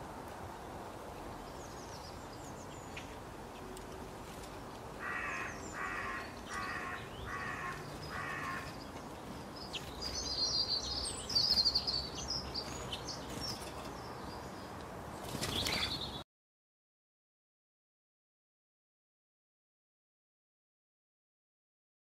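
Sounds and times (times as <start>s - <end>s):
starling harsh calls: 5.0s - 8.8s.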